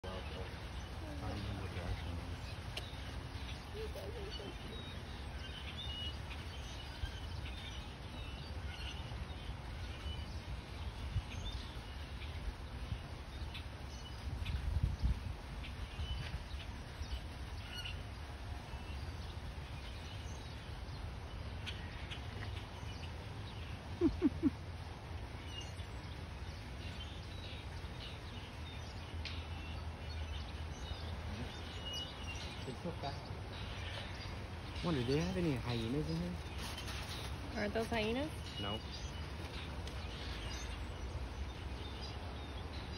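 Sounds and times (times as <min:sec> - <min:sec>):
low background hum: 0:00.0 - 0:42.9
short low falling calls: 0:23.8 - 0:24.9.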